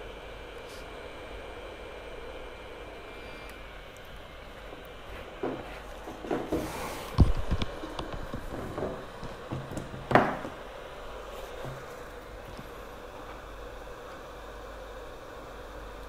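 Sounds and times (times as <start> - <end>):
low hiss: 0.0 - 16.0
tools knocking on workbench: 8.5 - 10.6.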